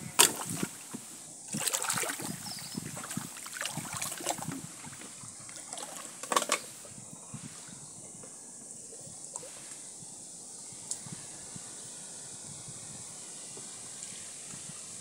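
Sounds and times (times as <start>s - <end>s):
river water sloshing: 0.0s - 7.8s
water splash: 0.2s - 6.6s.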